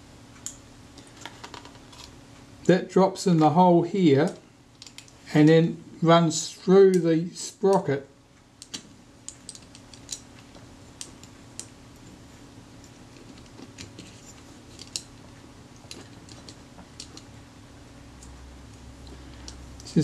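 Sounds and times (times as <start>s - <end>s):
faint low hum: 0.0s - 20.0s
small metallic clicks and taps: 15.8s - 17.3s.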